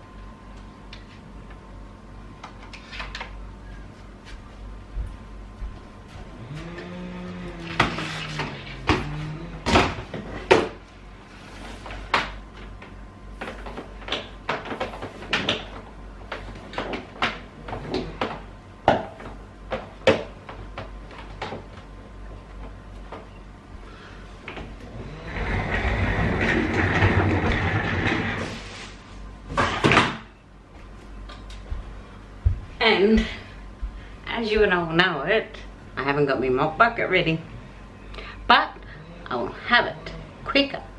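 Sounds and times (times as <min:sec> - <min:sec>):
vacuum wheels rumbling on floorboards: 0:24.5 - 0:28.8
shop vacuum motor winding down: 0:24.8 - 0:28.5.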